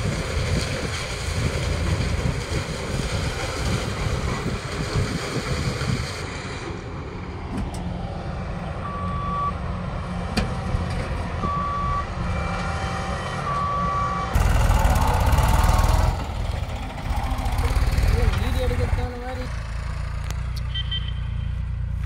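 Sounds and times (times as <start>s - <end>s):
farm machinery engines rumbling: 0.0s - 22.0s
reversing alarm beeping: 8.8s - 9.6s, 11.4s - 12.1s, 13.4s - 14.4s.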